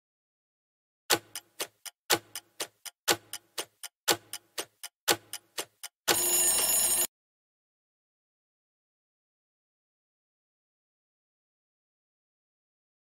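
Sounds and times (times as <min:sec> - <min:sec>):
clock ticking: 0:01.1 - 0:07.1
alarm bell ringing: 0:06.1 - 0:07.1.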